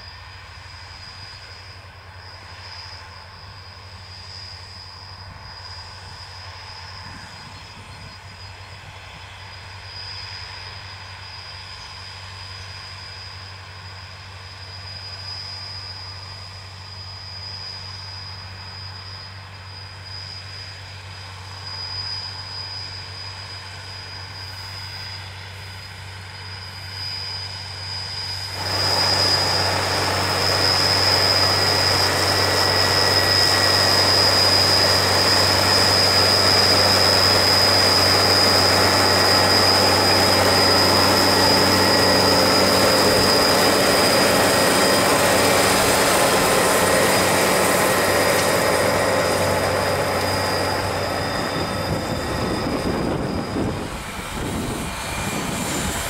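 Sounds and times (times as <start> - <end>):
constant high whine: 0.0 - 56.0
tractor engine hum: 24.4 - 56.0.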